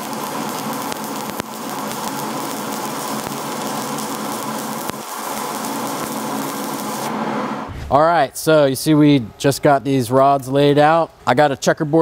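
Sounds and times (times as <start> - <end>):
welding arc sharp pops: 0.0 - 7.1
welding arc crackling hiss: 0.0 - 8.0.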